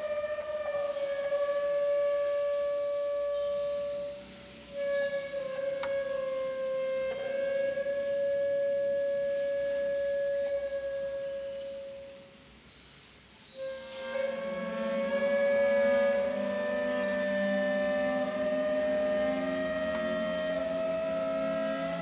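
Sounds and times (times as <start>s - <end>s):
long held high instrumental note: 13.6s - 22.0s.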